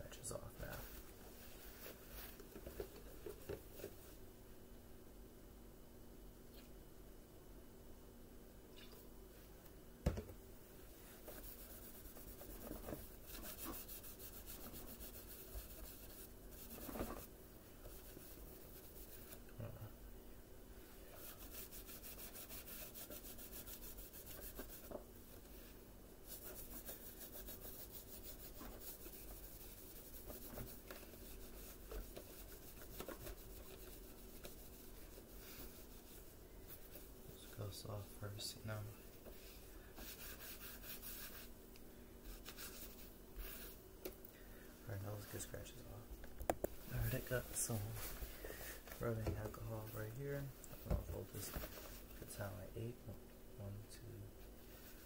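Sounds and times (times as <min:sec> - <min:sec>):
wipe rubbing on plastic: 0:11.0 - 0:19.5, 0:21.1 - 0:38.6, 0:39.2 - 0:41.6, 0:42.2 - 0:43.8, 0:46.8 - 0:52.7, 0:54.6 - 0:55.0.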